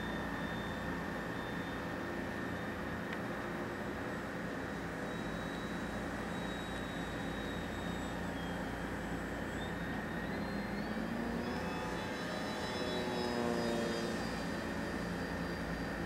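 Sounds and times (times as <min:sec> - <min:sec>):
model plane motor whining: 0:06.3 - 0:16.0.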